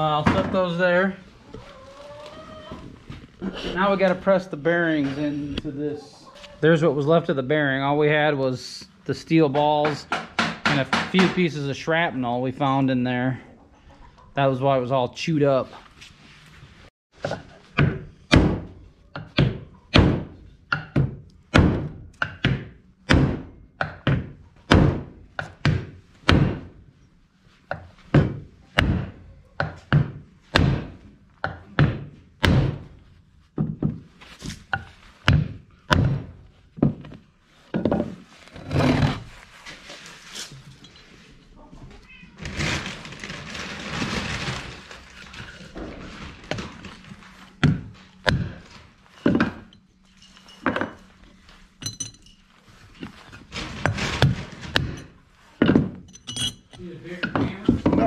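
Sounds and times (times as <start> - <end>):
hammer striking wooden board: 10.1 - 11.4
rustling noise: 15.6 - 16.9, 32.9 - 35.3, 36.4 - 49.3, 50.0 - 55.6.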